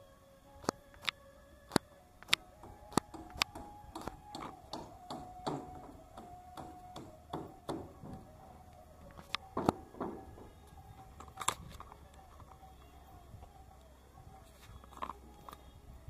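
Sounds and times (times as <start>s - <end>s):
faint steady hum: 0.0s - 16.0s
sharp clicks or taps: 0.6s - 8.3s, 9.0s - 11.6s.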